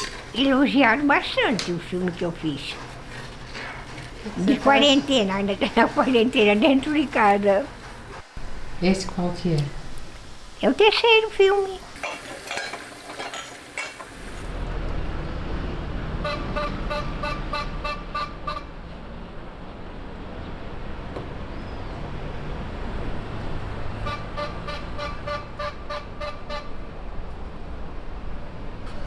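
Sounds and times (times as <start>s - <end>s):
street traffic rumbling: 0.0s - 12.0s, 13.8s - 29.0s.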